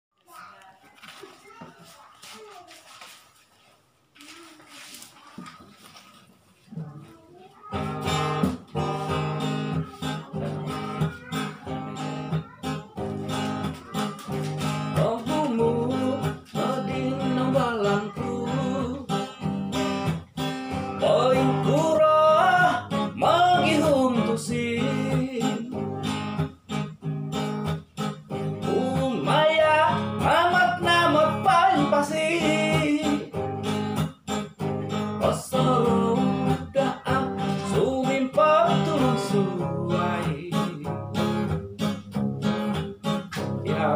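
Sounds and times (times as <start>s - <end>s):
acoustic guitar strumming: 7.6s - 43.9s
man singing: 13.8s - 19.8s, 20.7s - 26.2s, 28.3s - 33.8s, 34.8s - 41.9s, 43.4s - 43.9s.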